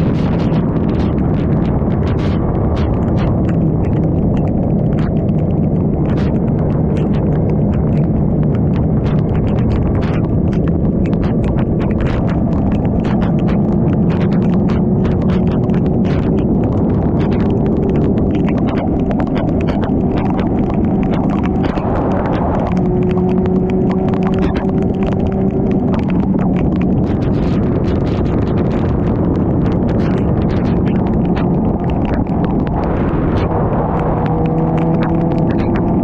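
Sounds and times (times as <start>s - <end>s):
motorcycle engine drone: 0.0s - 36.0s
raindrops ticking on camera: 0.0s - 36.0s
wind and road noise: 0.0s - 36.0s.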